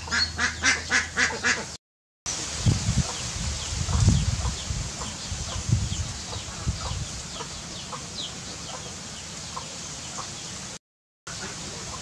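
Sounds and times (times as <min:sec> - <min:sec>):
chick peeping: 0:03.8 - 0:08.9.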